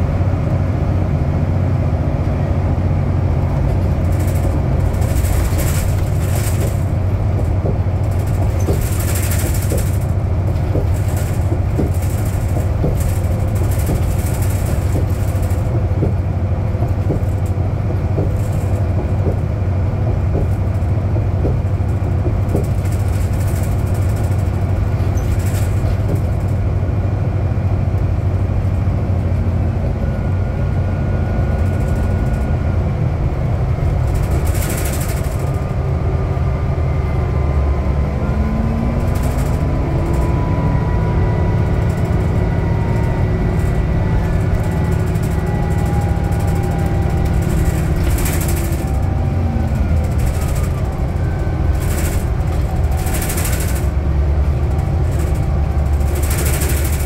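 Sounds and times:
bus engine drone: 0.0 - 57.0
road noise: 0.0 - 57.0
brief rattles: 3.7 - 26.6, 34.0 - 35.7, 41.6 - 57.0.

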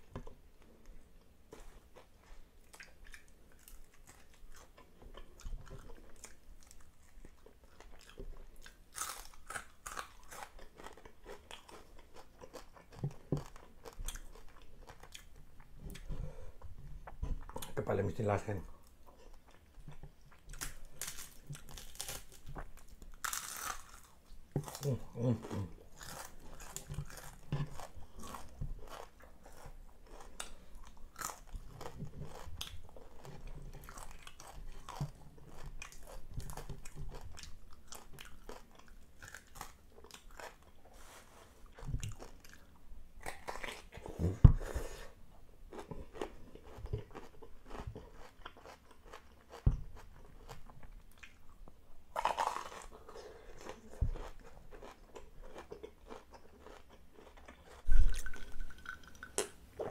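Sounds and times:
crunchy chewing of fried fish: 1.2 - 16.2, 17.0 - 59.9.

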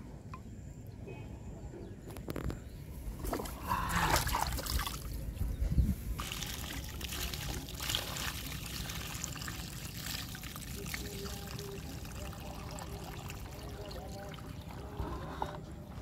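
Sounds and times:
water splashing in a plastic tub: 3.2 - 5.2, 6.2 - 15.2
water pouring onto grass: 6.2 - 14.9.

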